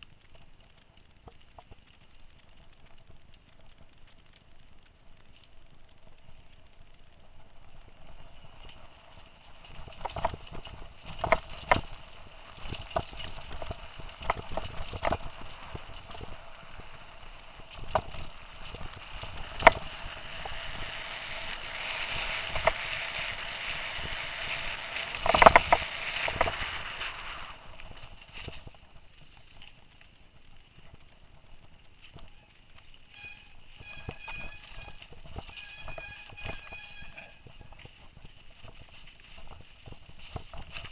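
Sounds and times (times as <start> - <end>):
mountain bike rattling over bumps: 2.5 - 40.9
tyres hissing and brushing vegetation: 8.9 - 30.0.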